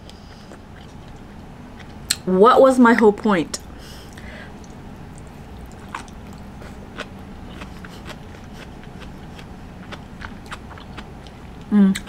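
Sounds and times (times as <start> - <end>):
low steady hum: 0.0 - 12.0
wet chewing clicks: 4.0 - 12.0.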